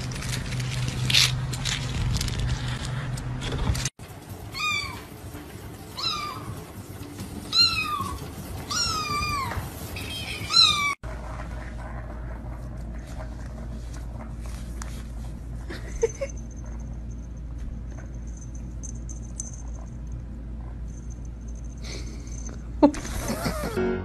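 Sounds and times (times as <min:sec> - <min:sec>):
cat meowing: 0:04.5 - 0:05.1, 0:06.0 - 0:06.5, 0:07.5 - 0:11.0.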